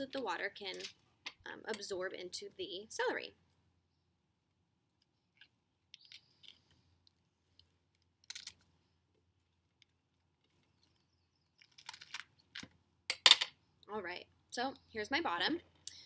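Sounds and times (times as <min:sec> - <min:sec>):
knife crunching through celery: 0:07.6 - 0:08.7, 0:11.5 - 0:12.8.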